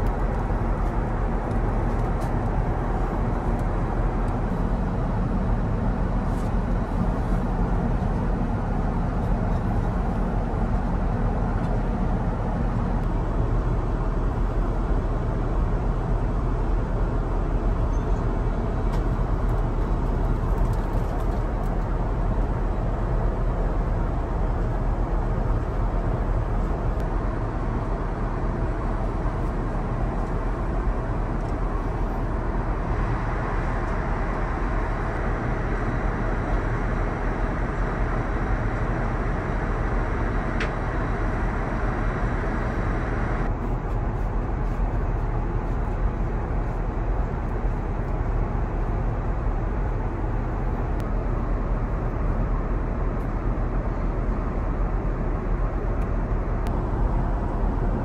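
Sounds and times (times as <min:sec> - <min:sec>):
airplane cabin air and engine rush: 0:00.0 - 0:58.0
low hum: 0:25.6 - 0:54.7.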